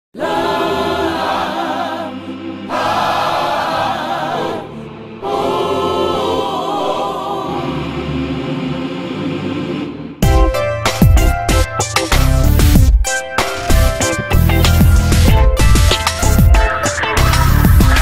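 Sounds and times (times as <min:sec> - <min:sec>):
choir singing with vibrato: 0:00.2 - 0:10.2, 0:16.6 - 0:18.0.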